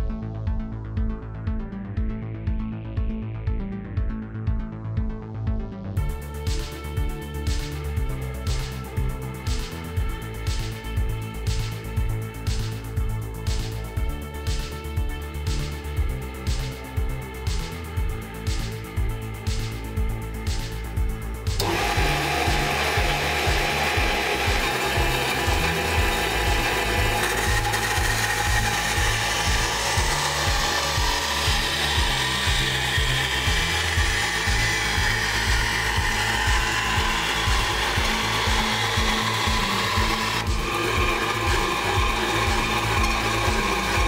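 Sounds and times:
bandsaw cutting wood: 21.5 - 44.0.

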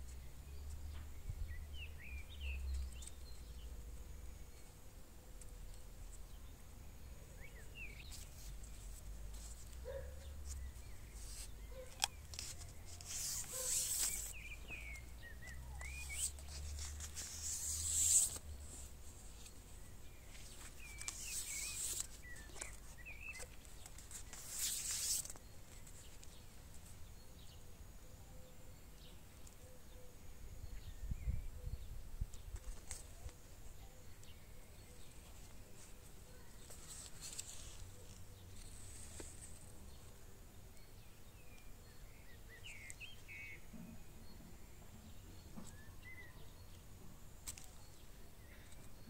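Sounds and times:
faint bird chirps: 0.0 - 49.0
plastic tape crinkling: 8.1 - 14.6, 15.4 - 19.6, 20.3 - 26.3.

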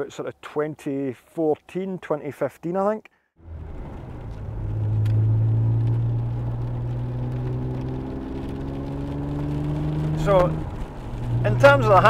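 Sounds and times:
car engine driving: 3.4 - 12.0.

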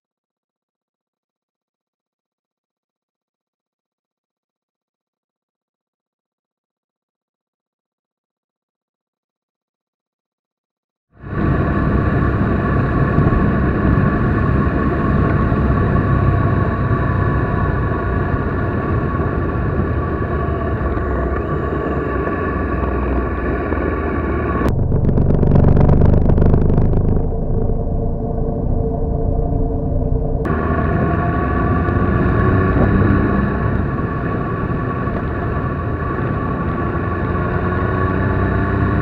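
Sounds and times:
motorcycle engine running: 11.2 - 28.3, 30.4 - 39.0
wind noise: 11.2 - 39.0.

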